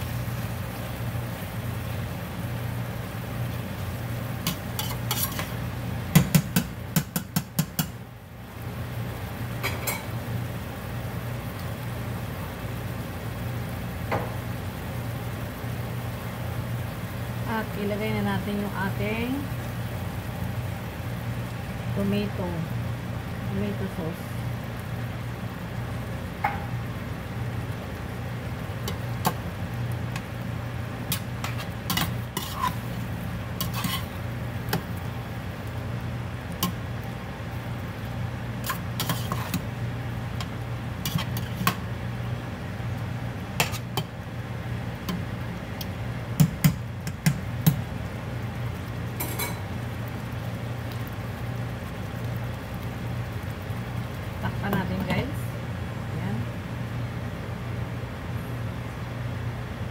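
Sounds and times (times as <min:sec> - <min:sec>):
steady low hum: 0:00.0 - 0:59.9
spoon scraping a metal pot: 0:04.5 - 0:05.6, 0:31.1 - 0:32.9, 0:33.6 - 0:34.2, 0:38.6 - 0:39.6, 0:41.0 - 0:41.7, 0:43.6 - 0:44.0
spoon knocking on pot: 0:06.1 - 0:08.0, 0:46.4 - 0:47.8.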